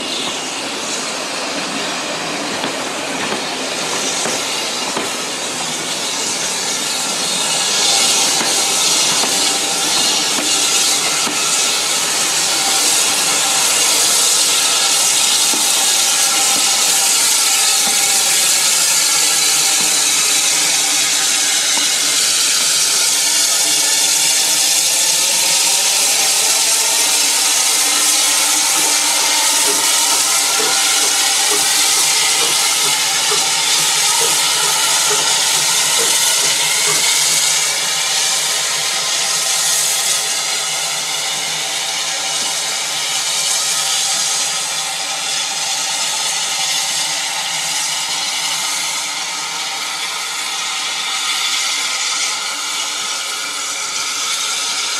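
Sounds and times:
steam locomotive hissing steam: 0.0s - 54.9s.

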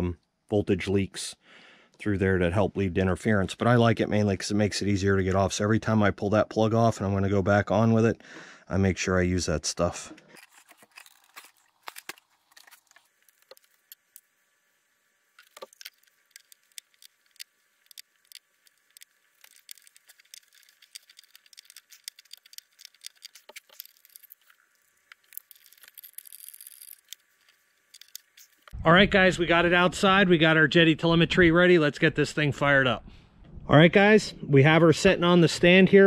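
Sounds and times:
screwdriver working: 10.3s - 14.2s, 15.4s - 28.7s
small hand tools clicking and tapping: 15.4s - 28.8s.

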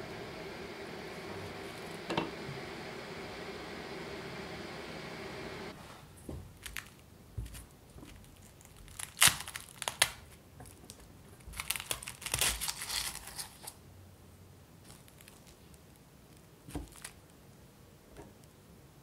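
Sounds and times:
pastry crackling against metal: 8.1s - 13.8s.

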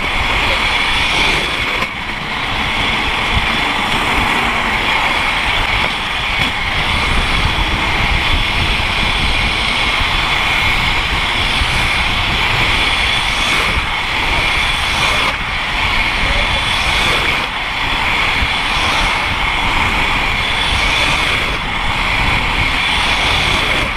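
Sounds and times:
skate wheels rolling on asphalt: 0.0s - 23.9s
wind rushing over microphone: 0.0s - 23.9s.

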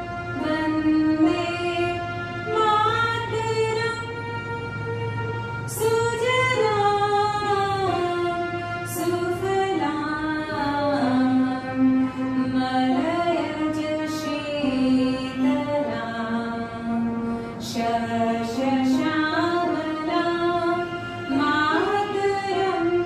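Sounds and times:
women singing together: 17.6s - 23.0s.

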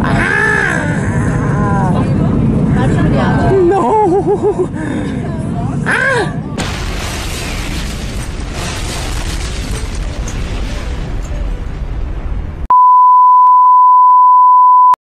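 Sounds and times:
explosion rumble: 6.6s - 12.7s.

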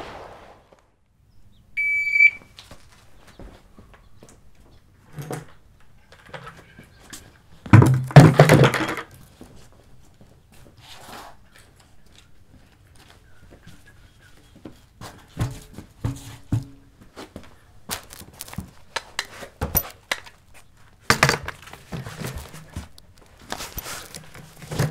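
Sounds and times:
shot timer beep: 1.8s - 2.5s
plastic buckets knocking and scraping: 5.0s - 9.4s, 14.7s - 17.2s, 21.0s - 24.9s.

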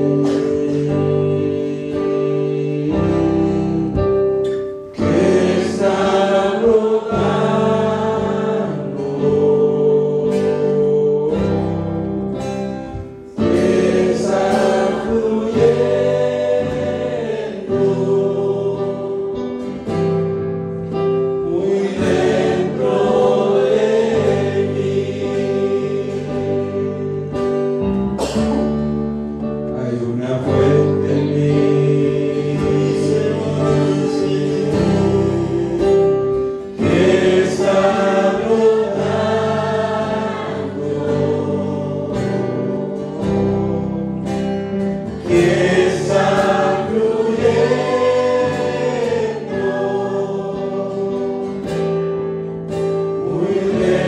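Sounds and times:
choir singing worship song: 0.0s - 54.0s
sustained accompaniment: 30.8s - 54.0s.

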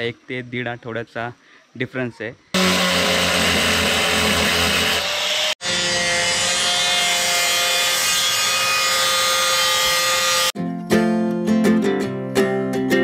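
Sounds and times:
angle grinder cutting steel: 2.6s - 10.6s.

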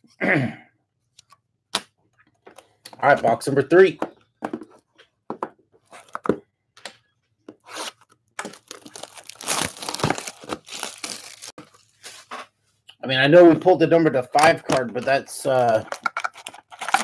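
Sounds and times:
plastic wrapping tearing and crinkling: 7.7s - 11.6s, 15.7s - 17.0s.

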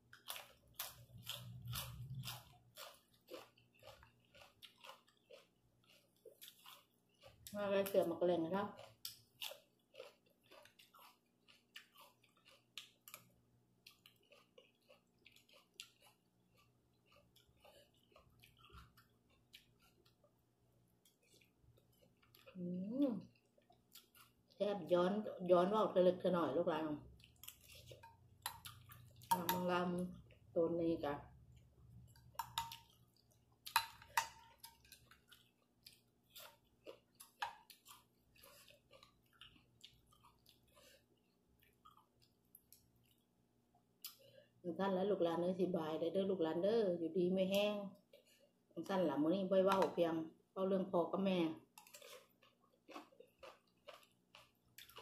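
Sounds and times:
person chewing with wet smacks: 0.0s - 24.6s, 27.0s - 30.6s, 31.3s - 44.5s, 47.9s - 48.8s, 51.6s - 55.0s.

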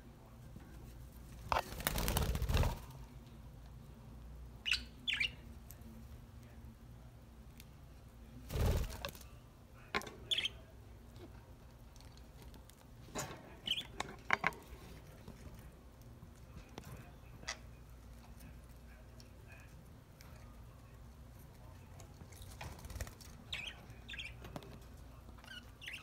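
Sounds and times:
wing flapping: 1.5s - 3.0s.

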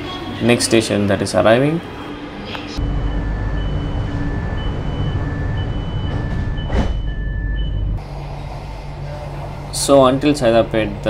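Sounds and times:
train carriage low rumble: 2.4s - 11.0s
alternating high and low beeps: 2.8s - 8.0s.

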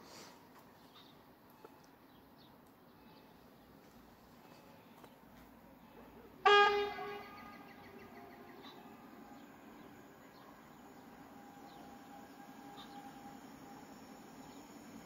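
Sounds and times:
train horn toot: 6.4s - 8.0s.

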